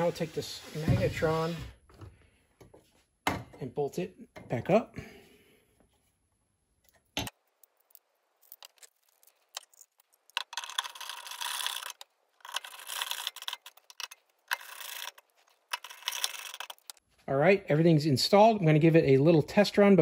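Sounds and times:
metallic clicking and scraping: 6.8s - 17.0s.

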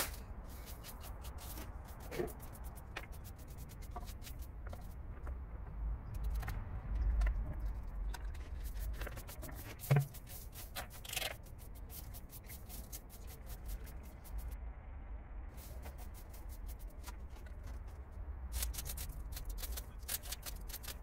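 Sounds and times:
low steady rumble: 0.0s - 21.0s
hand tool scrapes and clicks: 8.1s - 11.5s.

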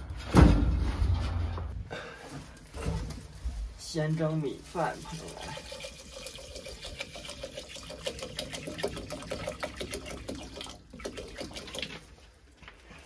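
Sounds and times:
water glugging from plastic bottle: 5.0s - 12.2s.

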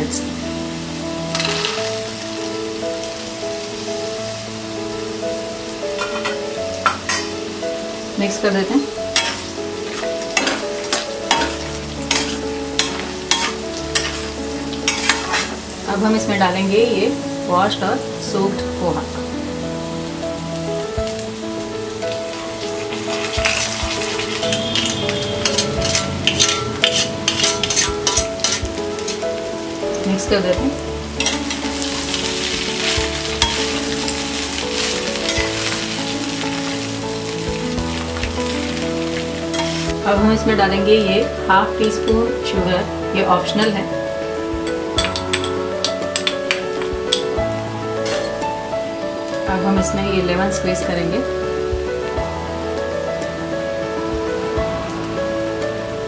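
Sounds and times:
food sizzling in oil: 0.0s - 56.0s
soft background music: 0.0s - 56.0s
spatula scraping a pan: 9.2s - 15.6s, 23.1s - 29.2s, 31.2s - 36.8s, 38.7s - 40.0s, 48.0s - 48.4s.

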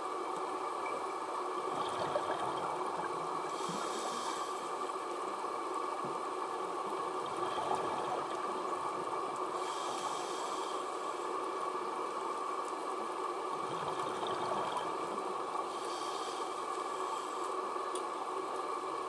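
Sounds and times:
underwater bubbling: 1.3s - 11.9s, 12.5s - 17.4s
regulator breathing hiss: 3.5s - 4.9s, 9.6s - 11.2s, 15.7s - 17.6s.

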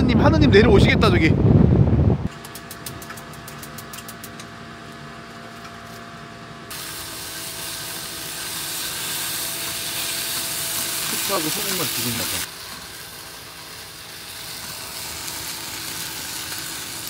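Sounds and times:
food sizzling in a pan: 6.7s - 17.0s.

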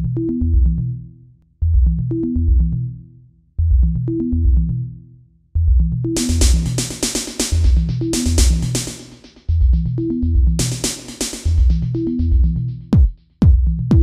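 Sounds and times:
drum machine and bass: 1.6s - 2.8s, 3.6s - 4.8s, 5.6s - 14.0s
electronic music: 5.8s - 14.0s.

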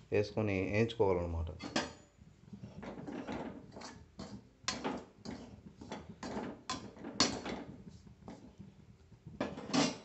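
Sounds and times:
metal skimmer scraping bran: 2.6s - 8.4s.

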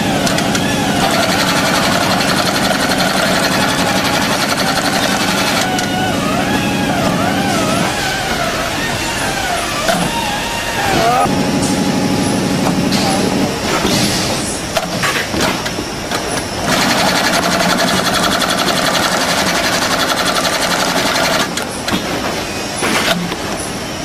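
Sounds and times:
sewing machine stitching: 0.0s - 6.0s, 16.6s - 22.1s.

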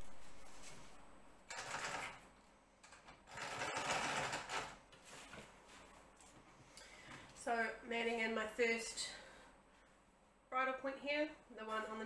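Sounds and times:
sewing machine stitching: 1.5s - 2.2s, 3.3s - 4.8s.

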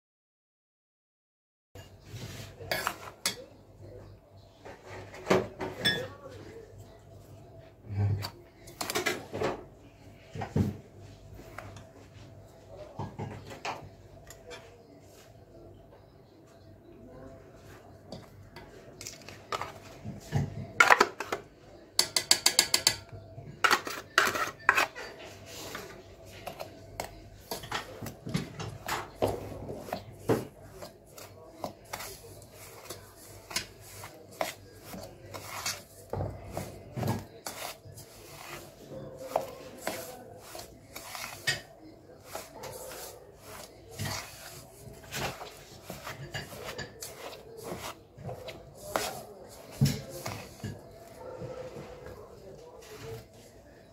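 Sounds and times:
metal spoon scraping metal bowl: 2.6s - 3.4s, 22.0s - 28.0s, 30.8s - 50.8s.

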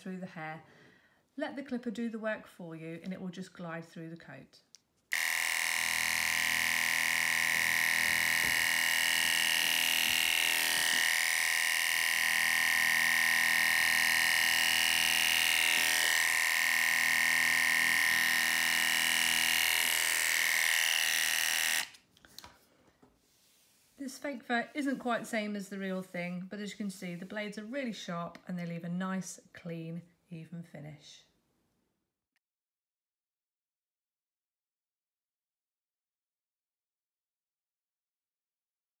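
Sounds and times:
electric clipper buzzing: 5.1s - 22.0s.

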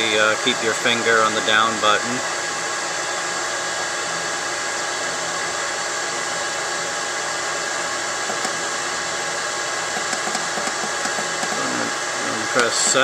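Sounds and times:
chiller whirring: 0.0s - 13.0s
faint steady tones: 8.3s - 13.0s.

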